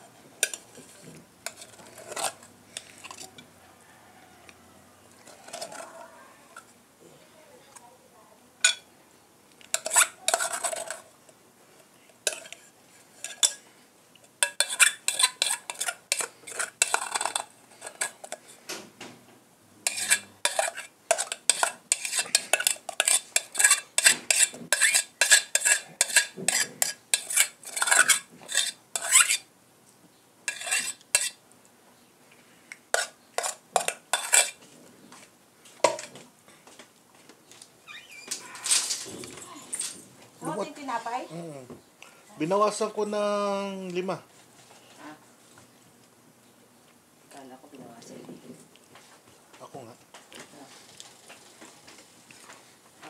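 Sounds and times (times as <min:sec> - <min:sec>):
metal spoon scraping aluminium pot: 0:00.4 - 0:03.4, 0:05.3 - 0:06.0, 0:09.7 - 0:11.1, 0:12.2 - 0:13.6, 0:14.4 - 0:18.4, 0:19.8 - 0:29.5, 0:30.5 - 0:31.4, 0:33.0 - 0:34.6.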